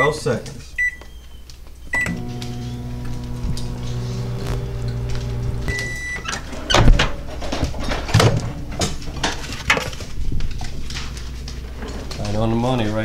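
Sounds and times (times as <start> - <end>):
microwave beep: 0.8 - 1.3, 1.9 - 6.4
microwave oven humming: 1.9 - 6.6.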